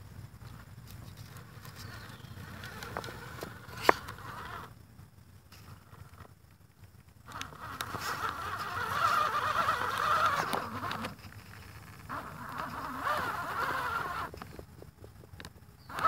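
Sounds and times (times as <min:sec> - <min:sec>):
electric motor whining: 0:01.6 - 0:04.7, 0:07.3 - 0:11.2, 0:12.1 - 0:14.4, 0:15.8 - 0:16.0.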